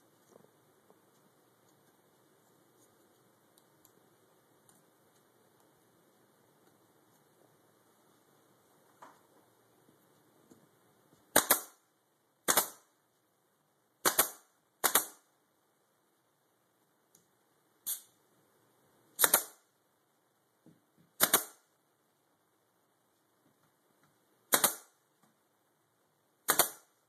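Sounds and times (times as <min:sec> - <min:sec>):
pin nailer firing: 0:11.3 - 0:11.8, 0:12.4 - 0:12.8, 0:14.0 - 0:15.2, 0:19.2 - 0:19.6, 0:21.2 - 0:21.6, 0:24.5 - 0:24.9, 0:26.4 - 0:27.0.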